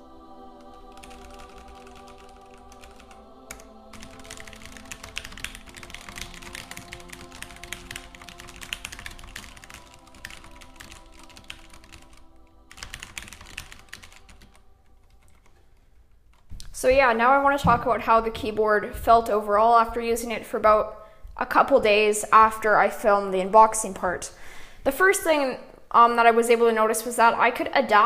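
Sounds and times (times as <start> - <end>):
background music: 0.0 - 28.0
fast typing on mechanical keyboard: 0.9 - 3.2, 3.9 - 15.5.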